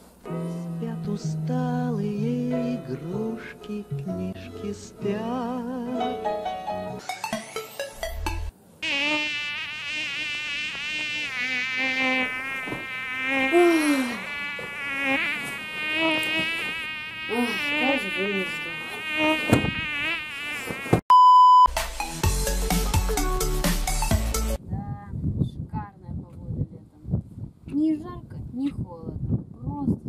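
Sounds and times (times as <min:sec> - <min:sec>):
music: 0:00.2 - 0:08.5, 0:21.7 - 0:24.6
short electronic beep: 0:21.1 - 0:21.7.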